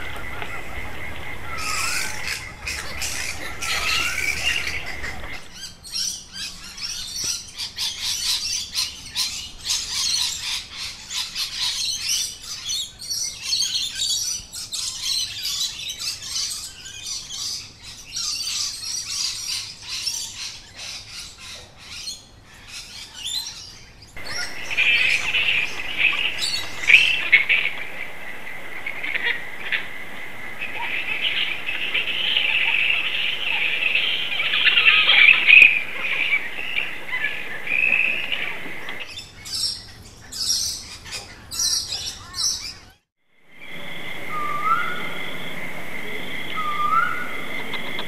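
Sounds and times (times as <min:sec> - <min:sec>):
gliding calls: 0:00.0 - 0:05.6, 0:24.2 - 0:39.1, 0:43.6 - 0:48.0
birds chirping and squawking: 0:00.0 - 0:07.2, 0:24.2 - 0:42.7, 0:43.6 - 0:48.0.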